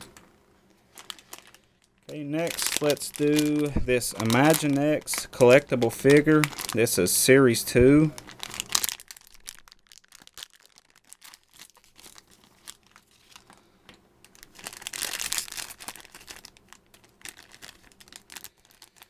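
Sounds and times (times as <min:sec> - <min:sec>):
foil bag crinkling: 0:00.8 - 0:19.0.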